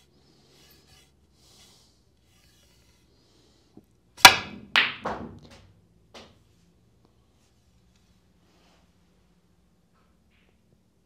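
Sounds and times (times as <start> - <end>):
ball knocking into pocket: 4.2 - 6.3
cue tip striking ball: 4.2 - 6.3.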